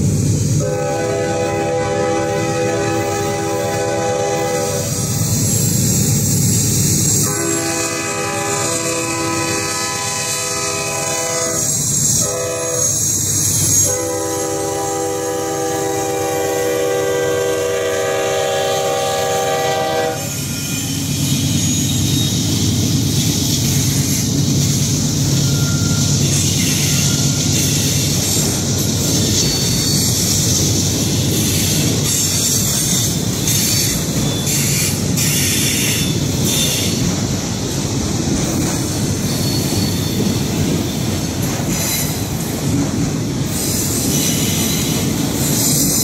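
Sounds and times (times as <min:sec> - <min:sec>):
train rumbling and clickety-clack: 0:00.0 - 0:46.0
locomotive air horn: 0:00.6 - 0:05.1, 0:07.1 - 0:20.9.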